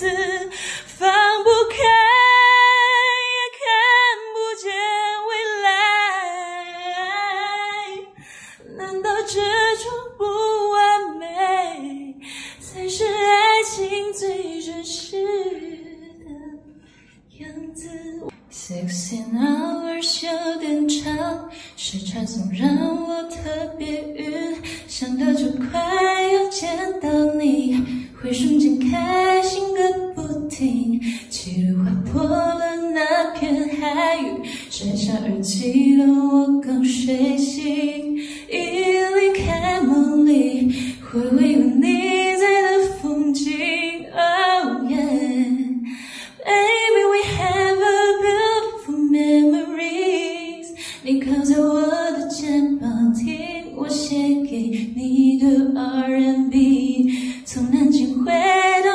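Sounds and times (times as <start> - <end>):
woman singing unaccompanied: 0.0 - 16.6, 17.3 - 58.9.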